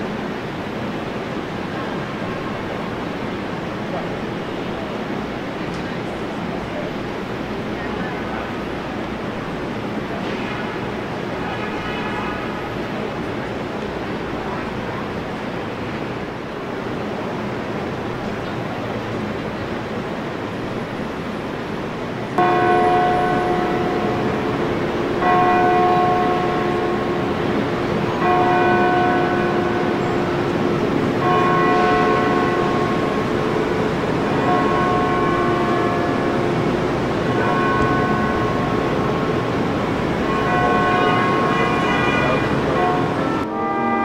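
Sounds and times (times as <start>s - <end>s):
city traffic hum: 0.0s - 44.0s
large bell tolling: 22.4s - 44.0s.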